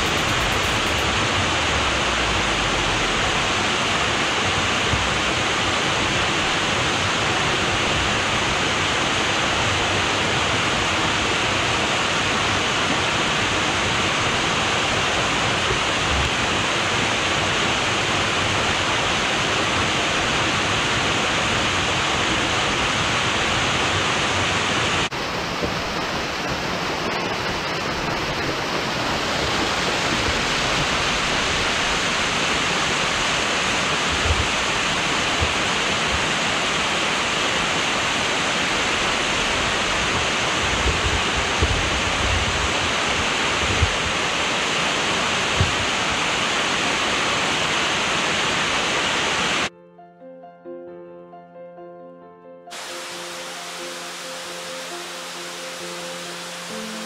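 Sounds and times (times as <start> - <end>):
waterfall rushing over rocks: 0.0 - 49.7, 52.7 - 57.0.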